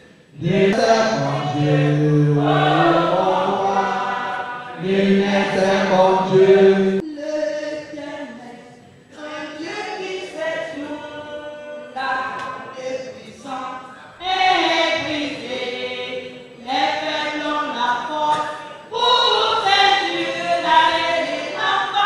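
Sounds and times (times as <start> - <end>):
congregation singing a hymn: 0.0 - 22.0
women singing: 0.4 - 7.0, 14.2 - 22.0.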